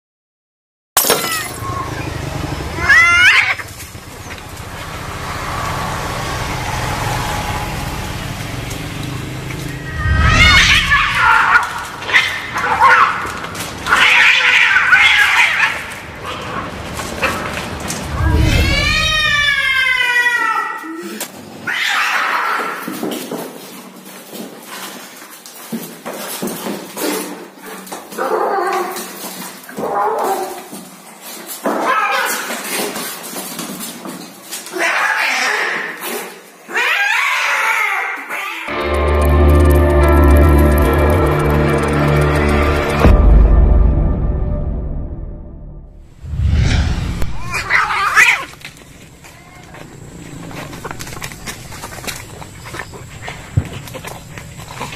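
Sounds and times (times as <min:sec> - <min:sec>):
cats screeching yowls: 0:02.7 - 0:04.3, 0:05.3 - 0:16.7, 0:18.1 - 0:23.0, 0:28.1 - 0:30.8, 0:31.6 - 0:32.8, 0:34.7 - 0:38.7, 0:47.4 - 0:48.6
cats scuffling: 0:21.4 - 0:34.9, 0:47.5 - 0:54.9.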